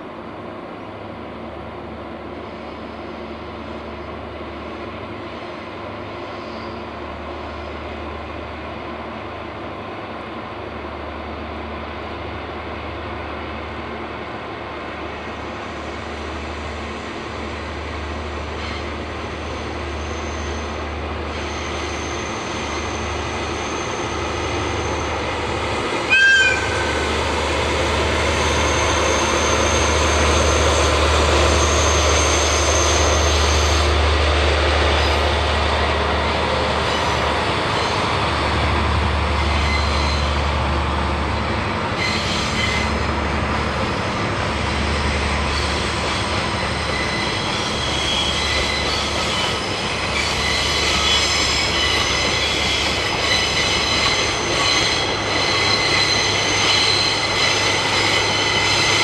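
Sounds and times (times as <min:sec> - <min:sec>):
train horn toot: 0:26.1 - 0:27.1.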